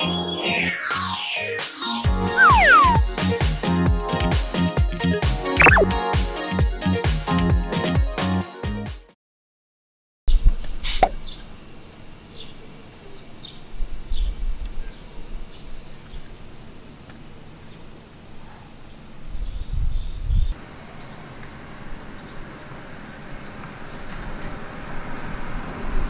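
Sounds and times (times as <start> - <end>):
cicadas singing: 2.1 - 3.8, 10.3 - 26.0.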